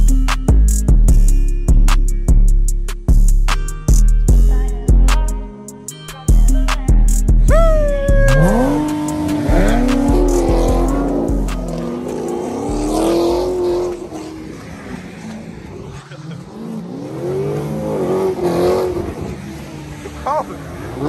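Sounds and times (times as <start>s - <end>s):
background music with deep bass: 0.0s - 21.0s
car engine revving: 7.4s - 21.0s.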